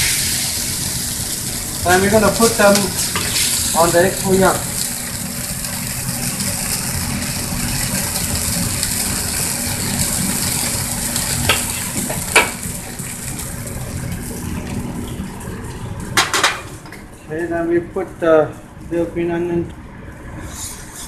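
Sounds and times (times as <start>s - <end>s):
gas burner roaring: 0.0s - 21.0s
plates clattering: 16.2s - 16.8s.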